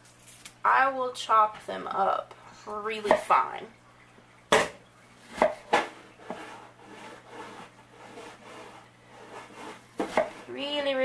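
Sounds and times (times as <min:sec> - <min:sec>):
knife chopping on wooden board: 0:04.5 - 0:08.6, 0:09.2 - 0:10.5.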